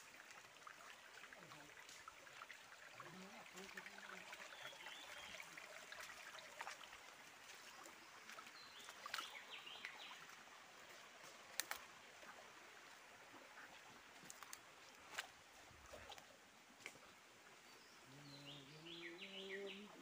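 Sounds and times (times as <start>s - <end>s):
twigs snapping: 11.5s - 11.8s.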